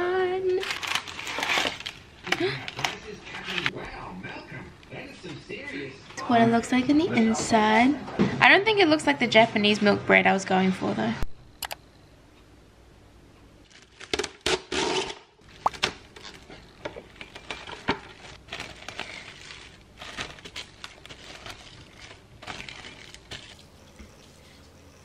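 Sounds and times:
cling film crinkling: 0:00.6 - 0:03.7, 0:13.6 - 0:14.5, 0:15.4 - 0:23.8.

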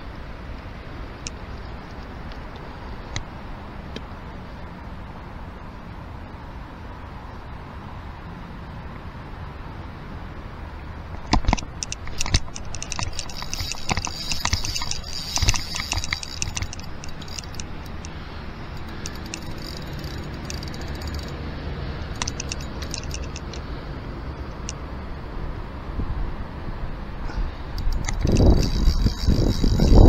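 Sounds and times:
fishing reel clicking: 0:11.4 - 0:21.4, 0:22.1 - 0:23.7, 0:27.8 - 0:30.0.

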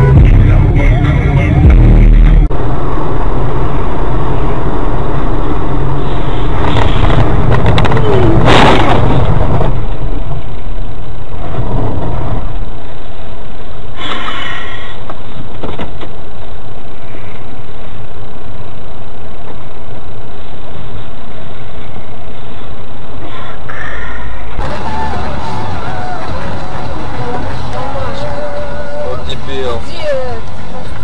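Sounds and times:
vehicle engine and road noise: 0:00.0 - 0:31.0
loud noisy bursts: 0:24.6 - 0:29.8.

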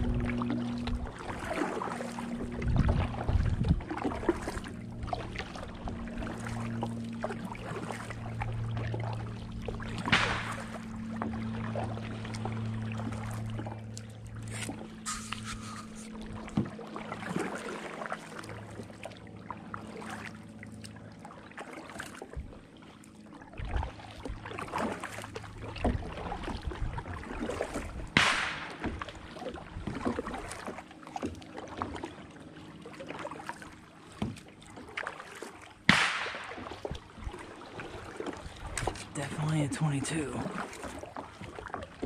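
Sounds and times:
paddle splashing in water: 0:00.0 - 0:42.0.

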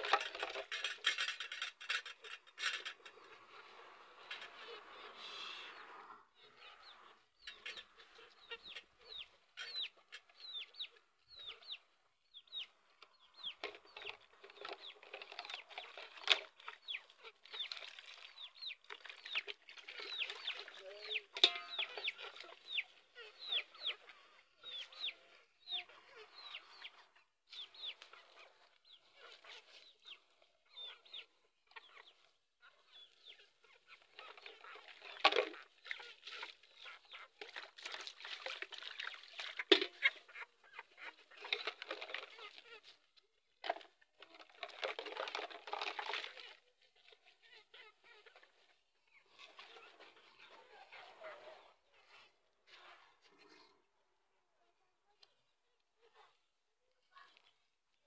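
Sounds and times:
chickens chirping: 0:02.1 - 0:38.2, 0:38.8 - 0:43.6, 0:45.1 - 0:53.8
cups clinking in water: 0:19.9 - 0:22.4.

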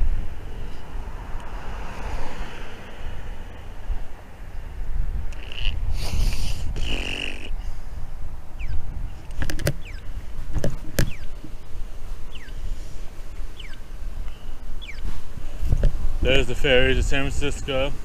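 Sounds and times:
wind rumble on microphone: 0:00.0 - 0:18.0
bird chirps: 0:08.6 - 0:10.1, 0:11.0 - 0:11.4, 0:12.3 - 0:12.6, 0:13.5 - 0:15.2.

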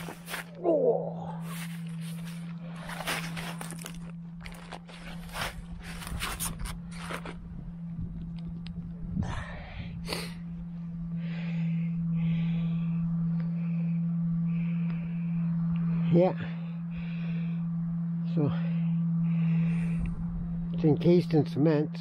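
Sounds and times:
snow crunching: 0:00.0 - 0:00.6, 0:01.3 - 0:07.6
steady low hum: 0:00.0 - 0:22.0.

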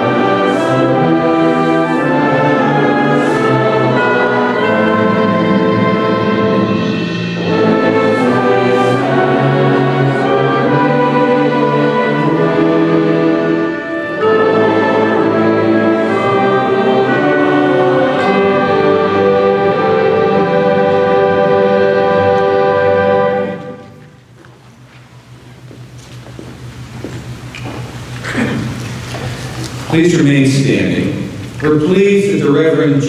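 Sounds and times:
choir with orchestra: 0:00.0 - 0:24.2.

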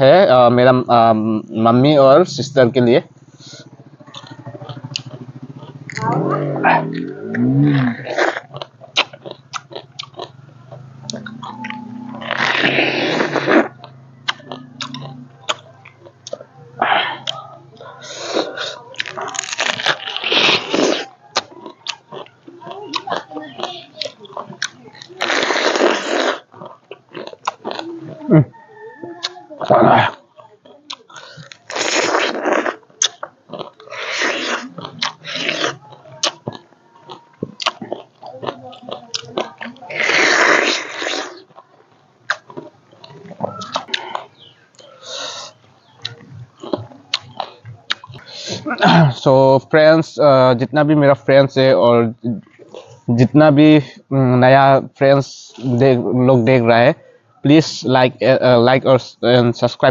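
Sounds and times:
fruit being chewed with wet crunches: 0:03.3 - 0:28.6, 0:29.2 - 0:49.1
slurping seeds: 0:06.8 - 0:16.0, 0:18.0 - 0:28.4, 0:29.2 - 0:49.1.

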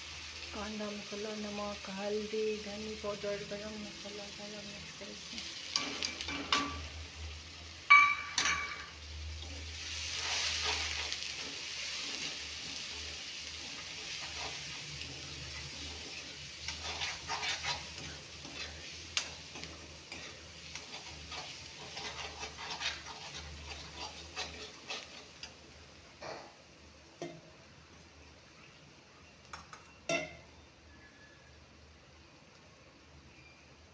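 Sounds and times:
paste sizzling in hot oil: 0:00.0 - 0:27.0
spoon stirring and scraping pan: 0:05.3 - 0:07.0, 0:07.9 - 0:26.6
spoon clinking on pan: 0:05.8 - 0:06.9, 0:07.9 - 0:08.9, 0:29.5 - 0:30.5.

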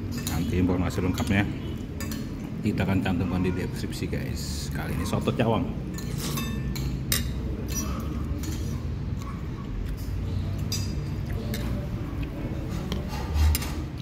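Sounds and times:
cutlery clinking on a ceramic plate: 0:05.9 - 0:08.8, 0:12.6 - 0:14.0.

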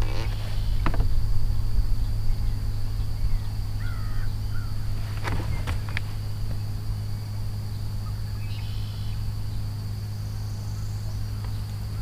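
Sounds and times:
bird calls: 0:00.0 - 0:12.0
low electric hum: 0:00.0 - 0:12.0
thin high whine: 0:00.0 - 0:12.0.

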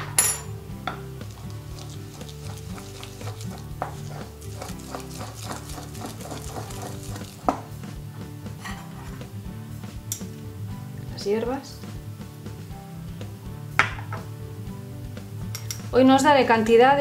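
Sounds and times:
pestle mashing in wooden mortar: 0:01.2 - 0:08.0.

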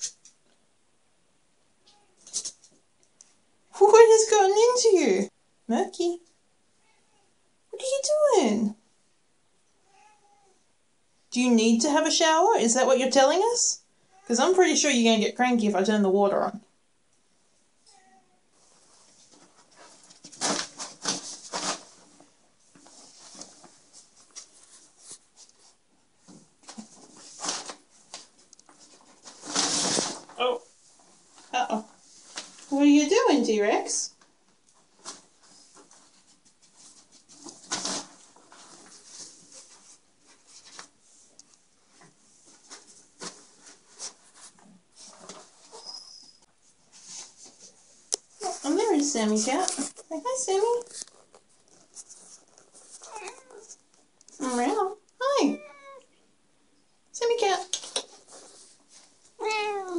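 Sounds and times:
plastic shower curtain rustling: 0:18.6 - 0:25.7, 0:26.3 - 0:33.2, 0:34.8 - 0:41.3.

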